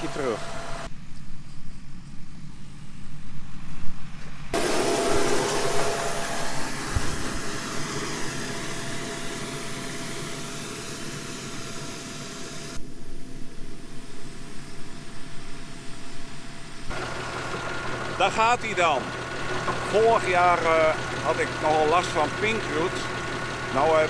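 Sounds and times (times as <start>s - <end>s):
tractor engine running: 0.0s - 0.9s, 4.6s - 12.8s, 14.3s - 24.0s
loud hiss: 4.6s - 24.0s.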